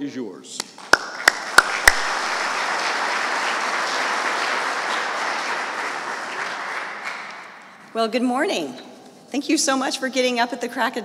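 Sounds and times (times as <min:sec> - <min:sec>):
audience applauding: 0:00.6 - 0:07.8.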